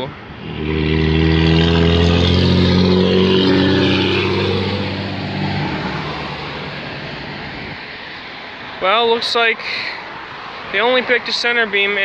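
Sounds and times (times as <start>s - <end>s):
engine passing by: 0.2s - 8.0s.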